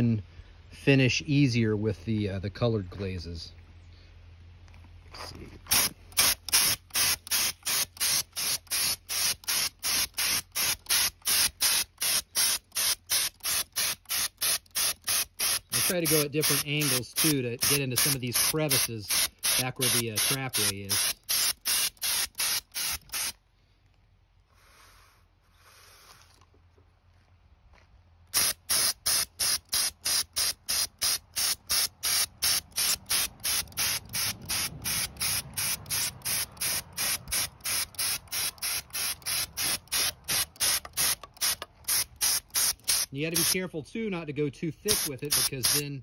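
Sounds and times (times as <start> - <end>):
spray gun pulsing hiss: 5.8 - 23.3, 44.9 - 45.8.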